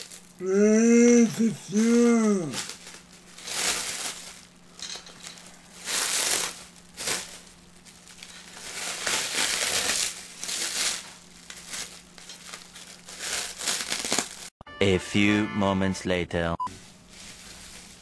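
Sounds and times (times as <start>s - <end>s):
plastic wrapping crinkling: 0.0s - 0.4s, 2.5s - 14.5s, 16.8s - 18.0s.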